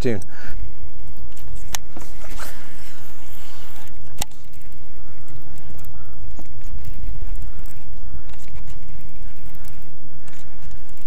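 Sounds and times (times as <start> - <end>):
wind buffeting microphone: 0.0 - 11.0
sharp click: 4.0 - 4.6.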